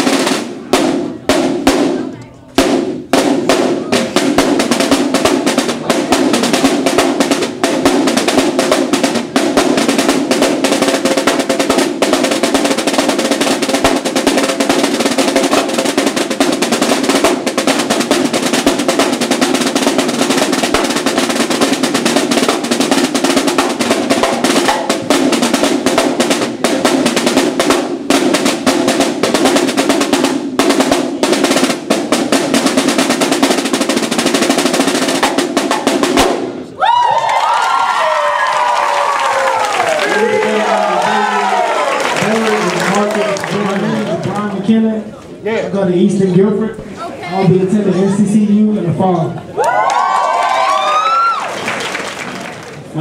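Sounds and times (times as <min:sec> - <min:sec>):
marching snare drums: 0:00.0 - 0:36.8, 0:39.8 - 0:44.8.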